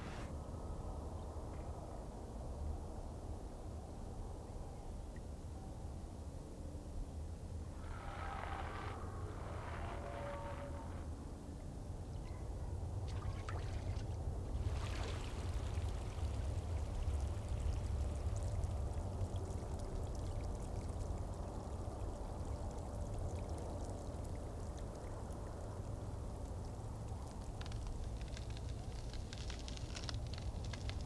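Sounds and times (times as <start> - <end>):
shallow water trickling: 12.0 - 31.0.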